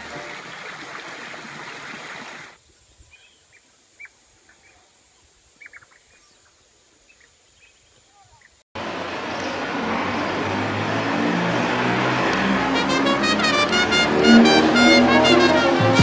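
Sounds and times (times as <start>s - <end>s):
stream rushing over rocks: 0.0s - 2.6s
bird chirps: 5.6s - 8.6s.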